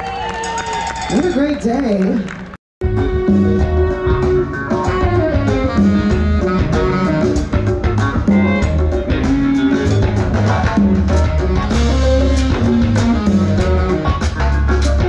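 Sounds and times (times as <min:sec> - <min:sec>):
bass line: 0:02.8 - 0:15.0
drum kit beat: 0:02.8 - 0:15.0
electric guitar playing: 0:02.8 - 0:15.0.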